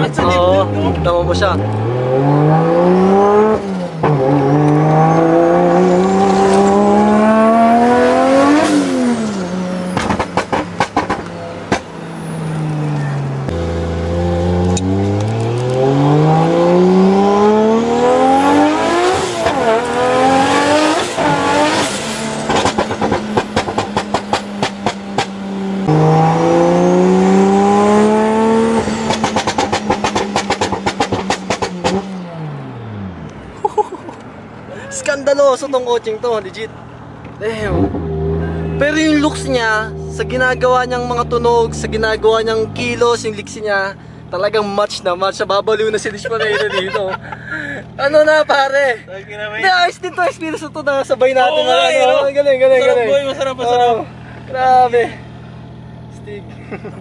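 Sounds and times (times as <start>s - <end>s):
car engine revving: 0.0s - 49.0s, 49.6s - 57.0s
exhaust pops and crackles: 9.9s - 11.9s, 22.4s - 25.4s, 28.9s - 32.1s.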